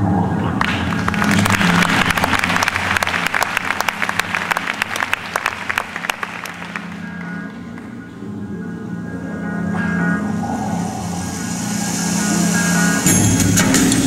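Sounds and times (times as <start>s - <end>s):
background music: 0.0s - 14.0s
audience applauding: 0.6s - 8.0s.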